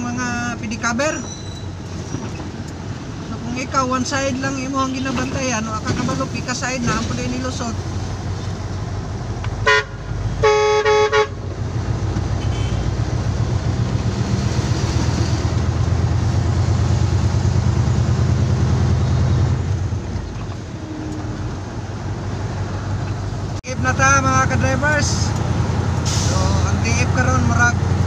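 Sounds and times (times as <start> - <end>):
truck engine drone: 0.0 - 28.0
vehicle horn blasts: 9.6 - 11.4, 12.4 - 13.0.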